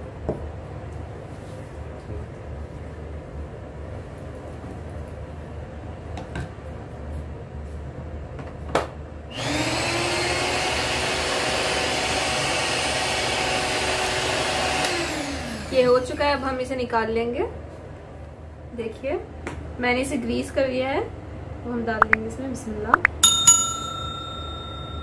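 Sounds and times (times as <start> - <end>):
beaters whirring through batter: 9.3 - 16.4
stand mixer motor whining: 9.4 - 16.1.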